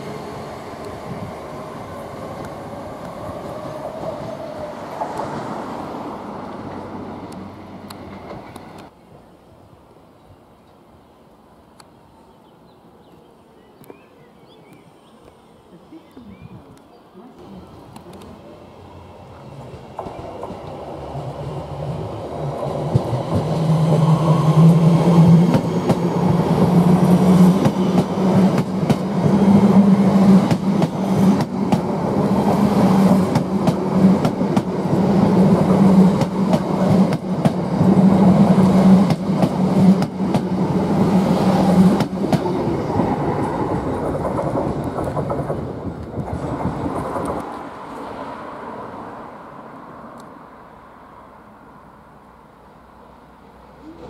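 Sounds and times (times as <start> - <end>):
electric train passing: 0.0 - 13.5, 17.4 - 54.0
train wheels rumbling: 17.8 - 48.2.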